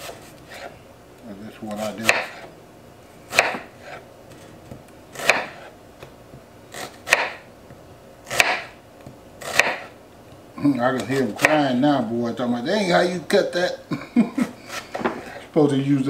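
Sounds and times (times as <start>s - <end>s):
knife slicing onion on cutting board: 1.7s - 2.5s, 3.3s - 5.7s, 6.7s - 7.5s, 8.3s - 10.0s, 11.0s - 11.6s.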